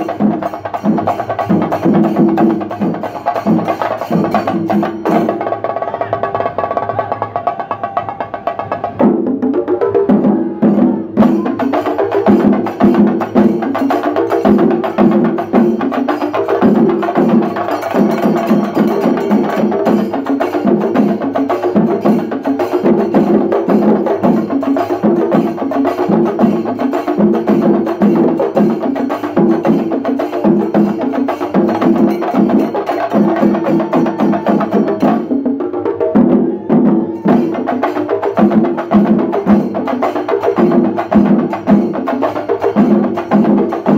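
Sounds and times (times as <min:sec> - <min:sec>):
hand cymbals clashing: 0:00.0 - 0:05.4, 0:11.2 - 0:35.5, 0:37.1 - 0:43.9
drums beaten fast with sticks: 0:00.0 - 0:43.9.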